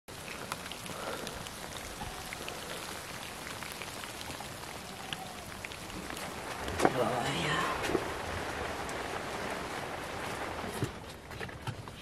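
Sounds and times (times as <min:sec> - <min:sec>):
drips ticking: 0:00.1 - 0:07.0
rain hiss: 0:00.1 - 0:12.0.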